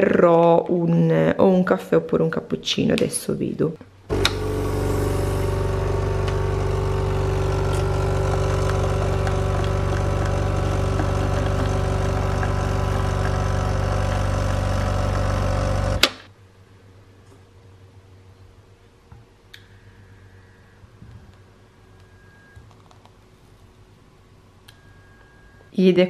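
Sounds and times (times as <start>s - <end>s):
coffee machine pump humming: 4.1s - 16.1s.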